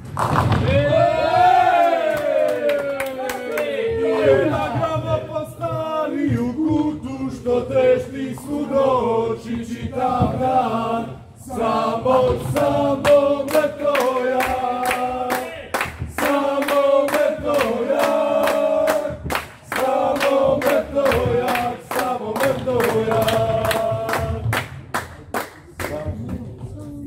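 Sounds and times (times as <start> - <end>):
group singing a chant: 3.8 - 24.7
rhythmic hand claps: 11.7 - 26.4.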